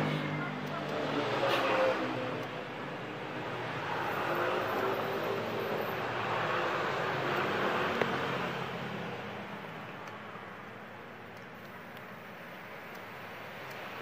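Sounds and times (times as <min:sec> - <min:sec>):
motor vehicle passing by: 0:00.0 - 0:09.5
road traffic rush: 0:00.0 - 0:14.0.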